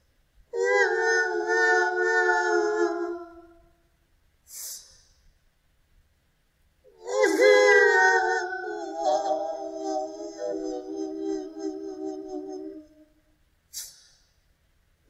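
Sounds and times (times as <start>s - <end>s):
woman wailing: 0.6s - 3.5s, 7.0s - 12.8s.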